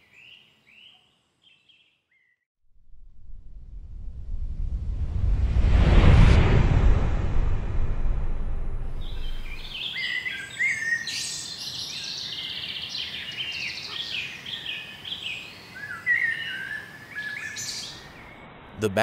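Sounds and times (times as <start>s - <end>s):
songbirds singing: 0.0s - 2.4s, 9.0s - 18.5s
low rumble: 2.7s - 9.8s.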